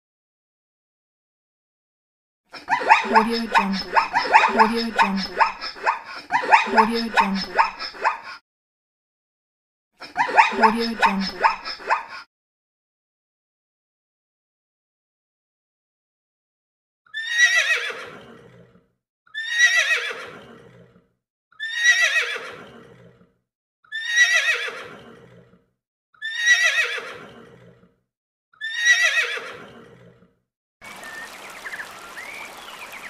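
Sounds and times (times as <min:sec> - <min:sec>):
horse whinnying: 0:17.1 - 0:21.0, 0:21.6 - 0:23.2, 0:23.9 - 0:25.6, 0:26.2 - 0:27.9, 0:28.6 - 0:30.3.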